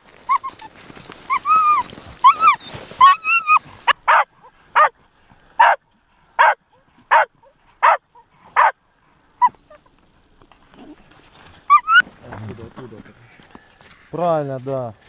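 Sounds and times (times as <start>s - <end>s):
dog barking in high yelps: 1.3s - 4.9s, 5.6s - 5.8s, 6.4s - 8.0s, 8.6s - 8.8s, 11.7s - 12.0s.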